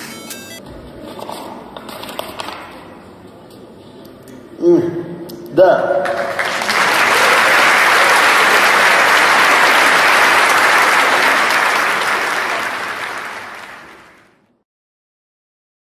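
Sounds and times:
audience applauding: 0:06.0 - 0:14.4.

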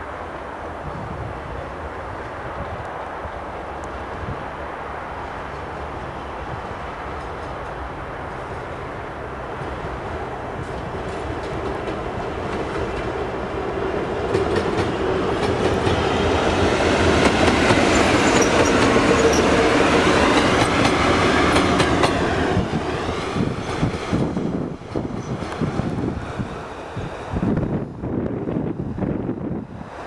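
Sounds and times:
diesel locomotive engine: 0:00.0 - 0:30.0.

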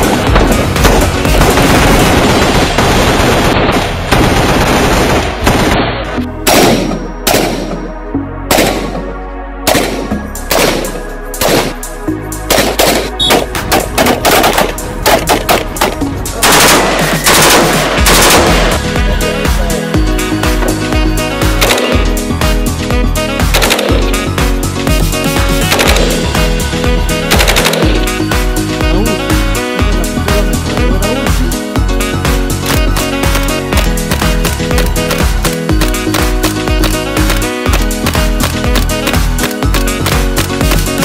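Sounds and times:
assault rifles firing: 0:00.0 - 0:07.8, 0:09.7 - 0:11.8, 0:12.5 - 0:18.8, 0:23.5 - 0:24.1, 0:25.6 - 0:26.2, 0:27.3 - 0:28.1.

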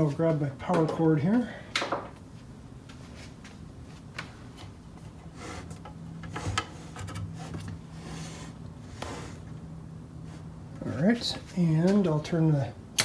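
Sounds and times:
power cord rubbing: 0:05.0 - 0:09.6.

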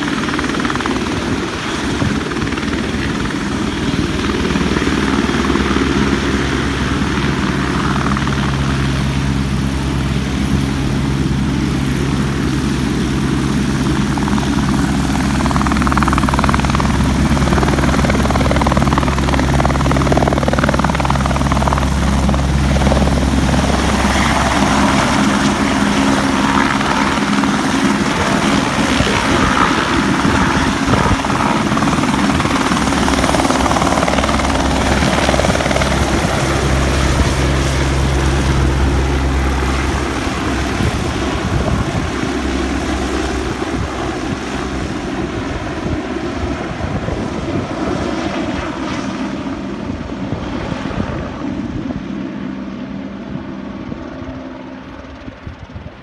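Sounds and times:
helicopter taking off: 0:00.0 - 0:56.0.

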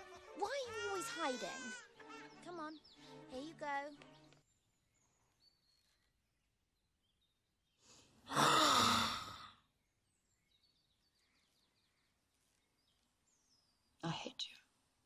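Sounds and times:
person sighing: 0:08.3 - 0:09.5.

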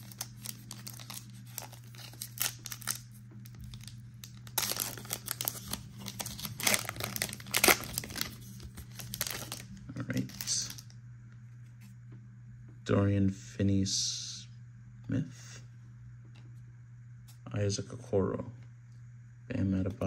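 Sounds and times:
foil wrapper crinkling and tearing: 0:00.0 - 0:10.9.

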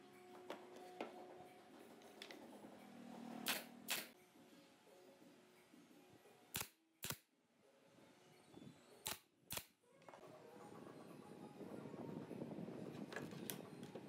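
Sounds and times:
nail gun firing: 0:03.4 - 0:04.1.

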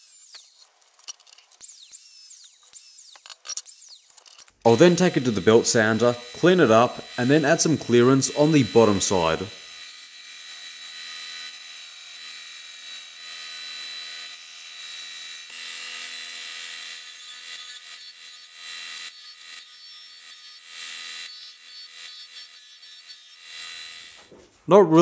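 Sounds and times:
metal rasping against sanding disc: 0:00.0 - 0:09.6
sander motor humming: 0:01.6 - 0:13.2.

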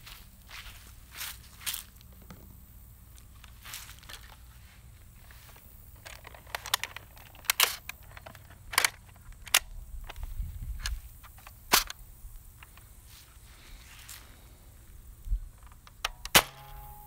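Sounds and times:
plastic toy blaster clicking: 0:06.0 - 0:10.2, 0:15.6 - 0:16.8.

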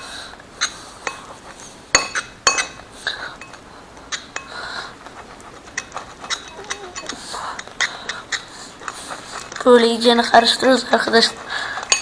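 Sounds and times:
spoon clinking against plate: 0:01.9 - 0:04.6, 0:05.6 - 0:08.5
soft wet scraping: 0:04.1 - 0:12.0.

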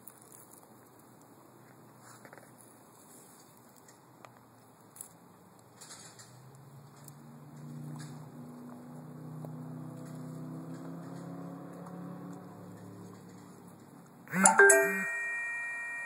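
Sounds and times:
metallic chime ringing: 0:14.4 - 0:16.0.

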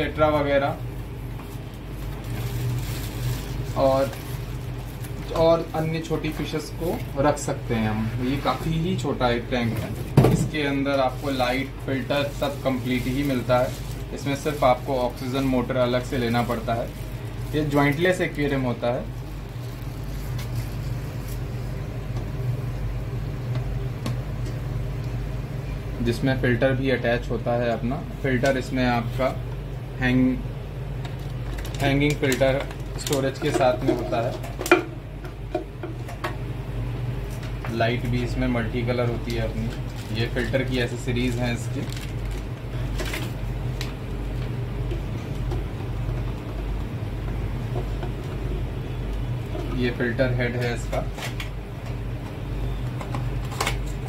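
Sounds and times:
machinery humming: 0:00.0 - 0:54.0.

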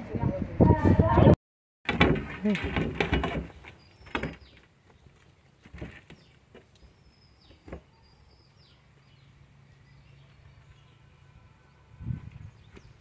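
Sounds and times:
birds chirping: 0:03.1 - 0:13.0.

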